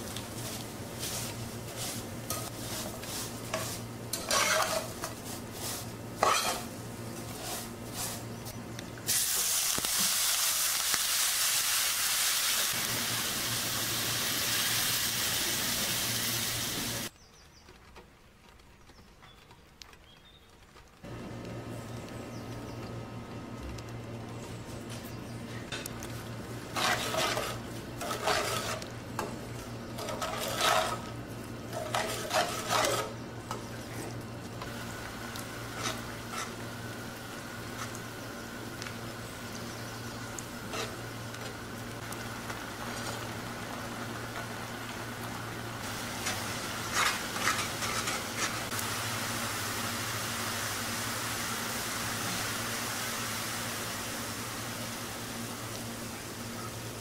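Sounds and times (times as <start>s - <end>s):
spatula scraping metal pan: 1.8s - 5.1s, 6.2s - 6.7s, 26.7s - 28.9s, 30.0s - 31.1s, 31.7s - 33.2s, 46.2s - 48.6s
syrup sizzling: 9.0s - 17.1s, 26.1s - 33.6s, 34.2s - 56.6s.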